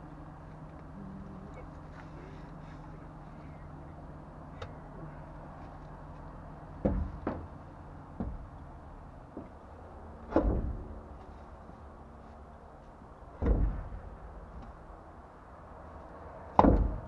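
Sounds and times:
tire thumping and knocking: 0:06.7 - 0:09.6, 0:10.2 - 0:11.0, 0:13.3 - 0:14.8, 0:16.5 - 0:17.0.

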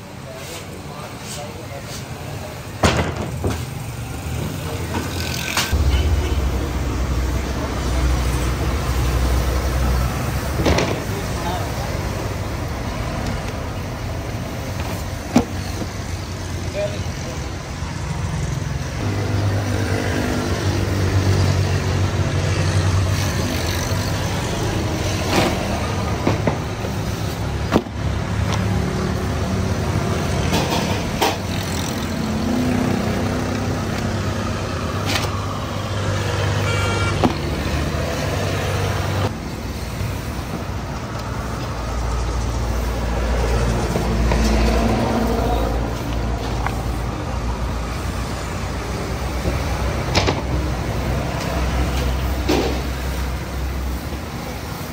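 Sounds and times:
vehicle engines passing: 0:00.0 - 0:54.9
deep engine rumble: 0:05.7 - 0:09.9.

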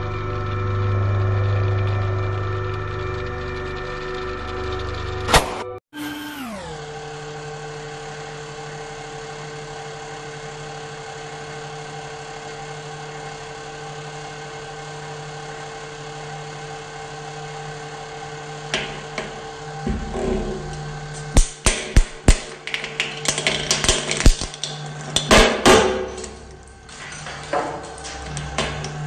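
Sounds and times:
hydraulic pump motor humming: 0:00.0 - 0:11.6, 0:15.6 - 0:29.0
sharp cracks of crushing: 0:21.3 - 0:26.0.

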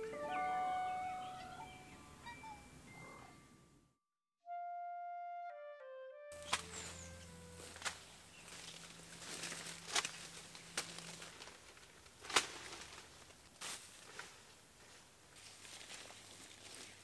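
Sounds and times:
leaves crackling and snapping: 0:06.4 - 0:14.5, 0:15.4 - 0:17.0
footsteps through dry grass: 0:06.4 - 0:17.0.

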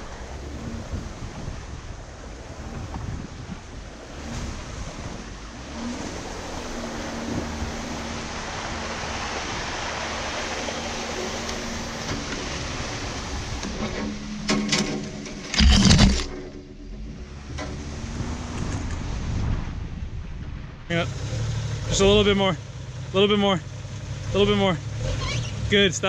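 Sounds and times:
wind on microphone: 0:00.0 - 0:14.5, 0:16.9 - 0:20.9
engine running: 0:00.0 - 0:20.2
water splashing around vehicle: 0:00.0 - 0:26.0.

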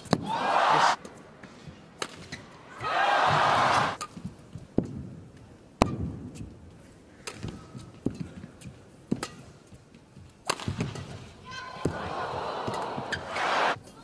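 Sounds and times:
rackets striking shuttlecock: 0:02.0 - 0:02.4, 0:07.2 - 0:08.3, 0:09.1 - 0:09.5, 0:10.4 - 0:11.2.

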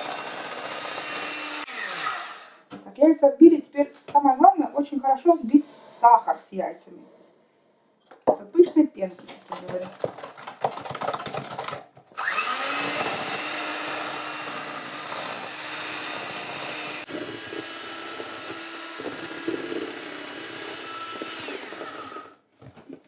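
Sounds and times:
electric hand mixer running: 0:00.0 - 0:02.6, 0:12.2 - 0:22.4
irregular clatter: 0:08.2 - 0:12.2.

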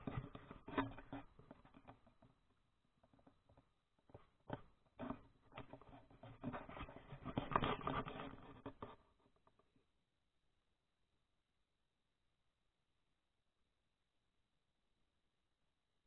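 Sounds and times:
camera handling rubbing and knocks: 0:00.0 - 0:02.3, 0:03.3 - 0:09.0.

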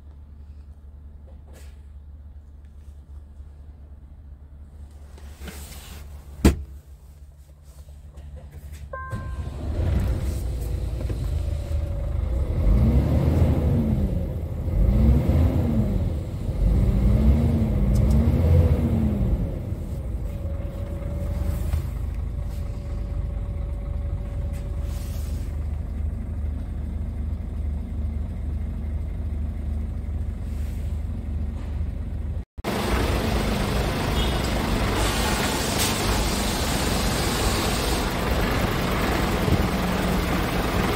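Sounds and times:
diesel truck engine starting and revving: 0:09.2 - 0:40.9
hiss: 0:34.9 - 0:38.2.

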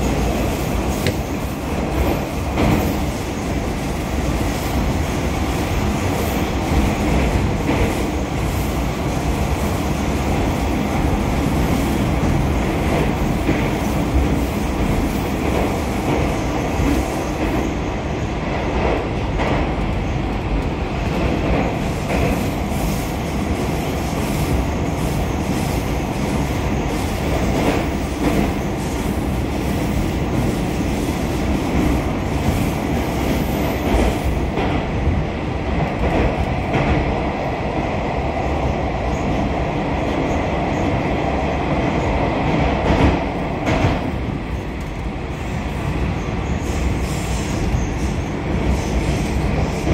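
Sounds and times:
rail joint clacks: 0:00.0 - 0:03.6, 0:18.4 - 0:37.8, 0:41.7 - 0:49.9
metro train running noise: 0:00.0 - 0:49.9.

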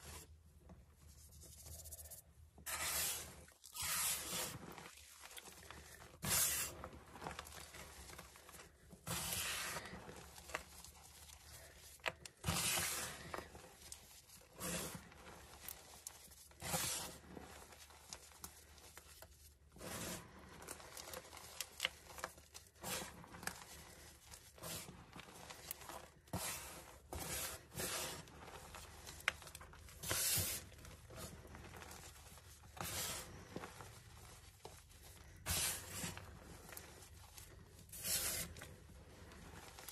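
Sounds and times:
hands rubbing chalk powder: 0:00.9 - 0:39.9
chalk crumbs clicking: 0:01.1 - 0:04.7.

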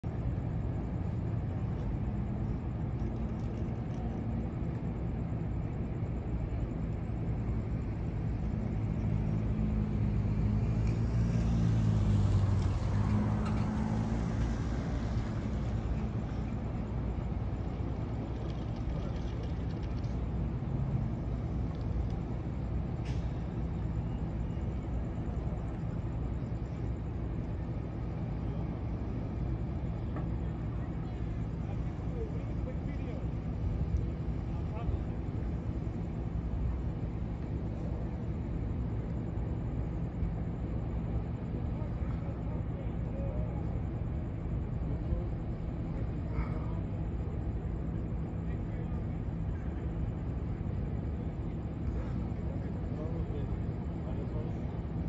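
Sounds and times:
road traffic rumble: 0:00.0 - 0:55.0
vehicle passing: 0:09.2 - 0:16.5.

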